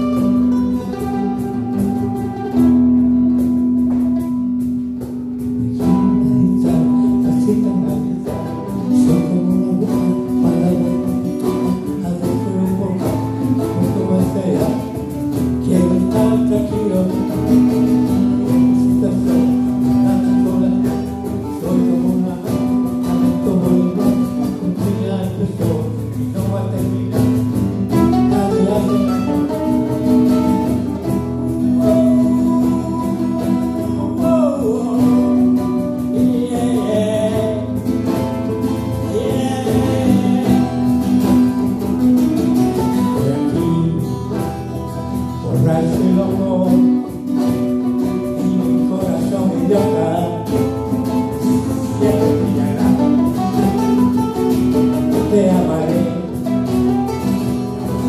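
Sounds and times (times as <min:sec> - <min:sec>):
acoustic guitar strumming: 0:00.0 - 0:58.0
mandolin: 0:00.0 - 0:58.0
person singing: 0:05.6 - 0:58.0.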